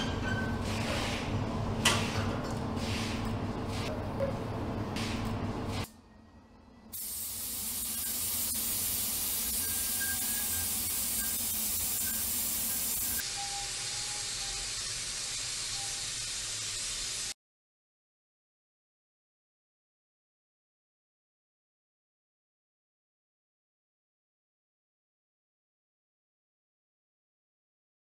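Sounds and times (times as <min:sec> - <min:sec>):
spray gun hissing: 0:06.9 - 0:17.4.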